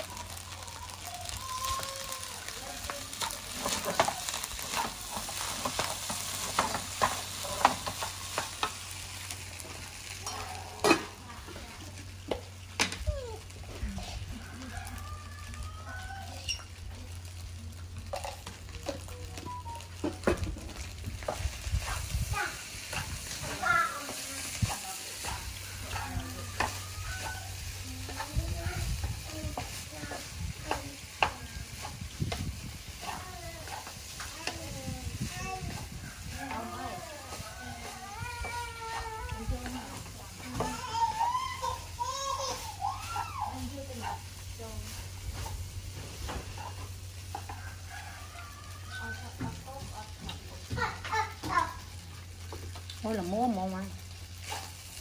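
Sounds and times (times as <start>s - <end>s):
food sizzling: 0.0s - 55.0s
spatula scraping frying pan: 1.7s - 11.7s, 18.0s - 49.6s, 54.0s - 55.0s.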